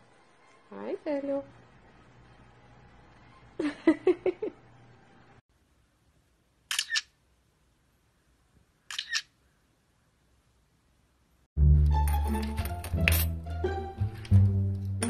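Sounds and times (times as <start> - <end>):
budgerigar imitating camera shutter: 6.7 - 7.1, 8.9 - 9.3.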